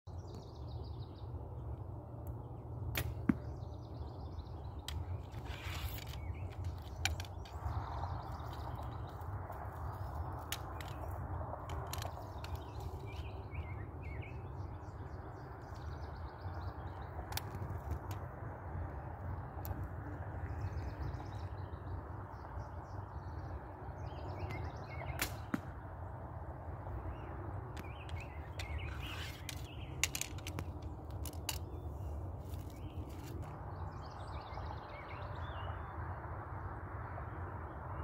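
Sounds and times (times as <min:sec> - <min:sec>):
birds chirping: 0:00.1 - 0:18.2, 0:26.8 - 0:35.8
wind rumble on microphone: 0:00.1 - 0:38.0.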